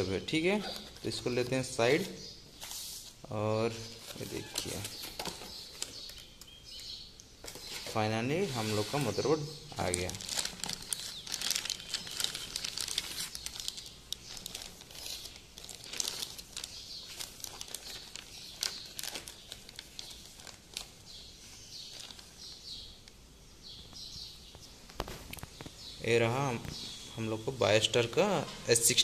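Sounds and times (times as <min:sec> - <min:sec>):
plastic bag crinkling: 0:07.8 - 0:22.6.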